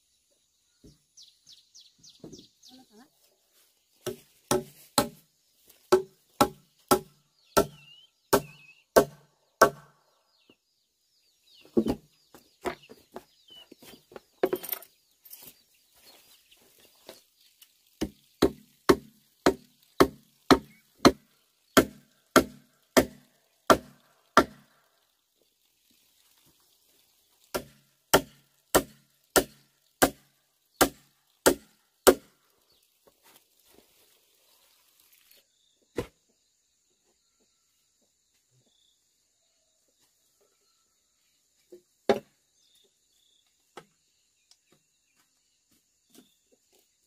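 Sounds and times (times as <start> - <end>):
knife chopping bamboo: 4.0 - 5.2, 5.9 - 9.9, 18.0 - 24.7, 27.5 - 32.3.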